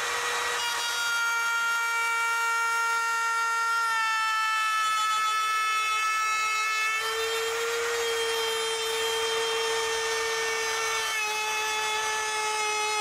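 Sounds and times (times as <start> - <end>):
router whining cutting wood: 0.0 - 13.0.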